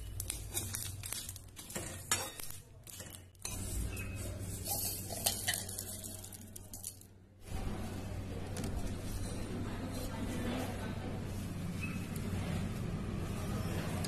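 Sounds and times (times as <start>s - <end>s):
metal scoop scraping steel: 0.3s - 7.0s.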